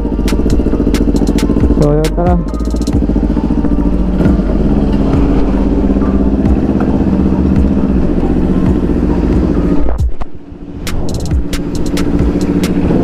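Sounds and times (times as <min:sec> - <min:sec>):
motorcycle engine running at low revs: 0:00.0 - 0:13.0.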